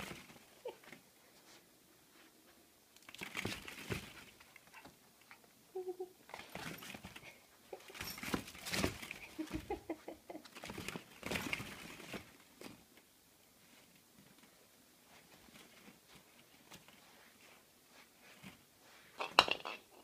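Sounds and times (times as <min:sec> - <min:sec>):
plastic balls clattering: 0:19.2 - 0:20.0.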